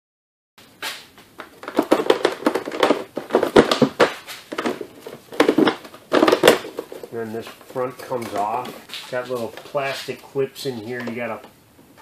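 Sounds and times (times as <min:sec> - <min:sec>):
hands clicking and rattling plastic: 0:01.4 - 0:09.8.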